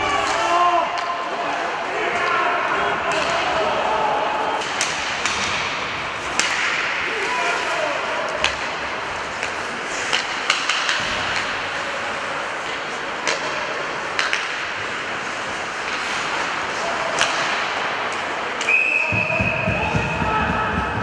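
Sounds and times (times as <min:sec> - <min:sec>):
hockey sticks clacking: 0:00.0 - 0:21.0
skates scraping on ice: 0:04.6 - 0:21.0.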